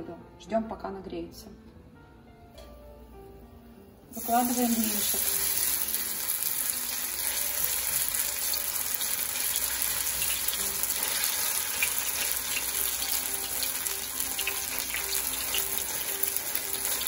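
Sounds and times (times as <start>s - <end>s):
batter sizzling in oil: 4.1s - 17.0s.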